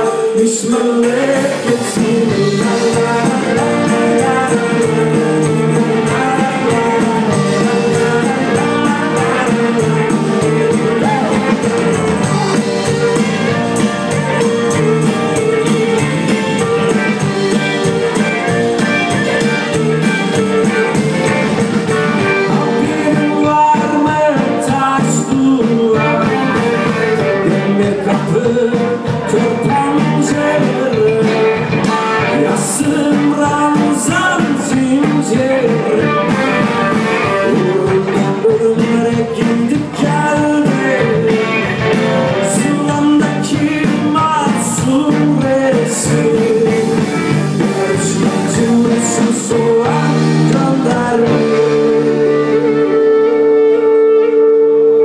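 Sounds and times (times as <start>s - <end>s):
drums: 0.0s - 55.0s
electric guitar: 0.0s - 55.0s
clarinet lead: 2.4s - 23.2s, 51.3s - 55.0s.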